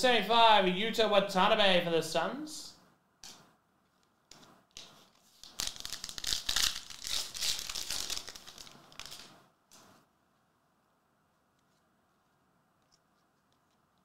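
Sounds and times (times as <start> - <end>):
foil pack crinkling and tearing: 5.4 - 9.3.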